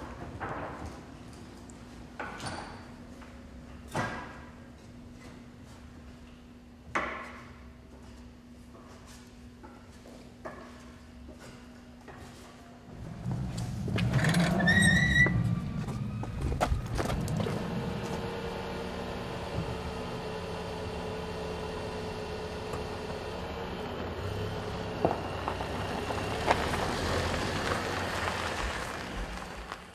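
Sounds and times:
rising squeak: 13.5s - 18.5s
car engine idling: 15.1s - 29.9s.

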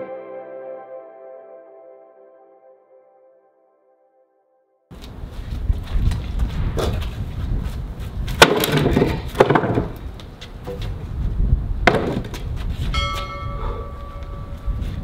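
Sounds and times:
wooden pallet clattering on table: 8.4s - 10.0s.

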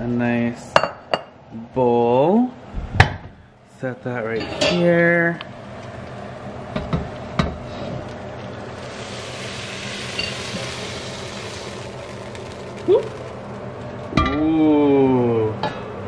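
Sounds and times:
soft hissing scrape: 8.7s - 14.1s.

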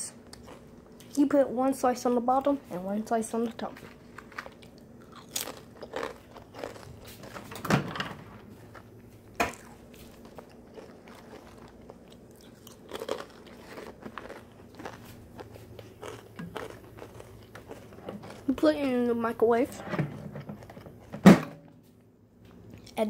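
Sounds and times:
crunchy rustling: 3.6s - 7.6s, 9.6s - 19.1s.

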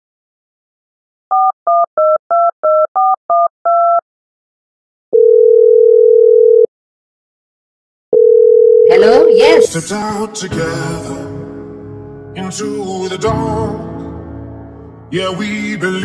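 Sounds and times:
two-tone keypad beeps: 1.3s - 4.0s
telephone ringing tone: 5.2s - 6.7s, 8.2s - 9.7s.

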